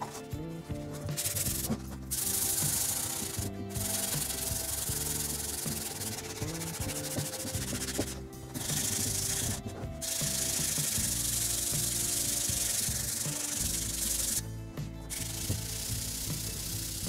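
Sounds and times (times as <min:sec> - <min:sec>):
sandpaper rasping on wood: 0:01.2 - 0:14.4.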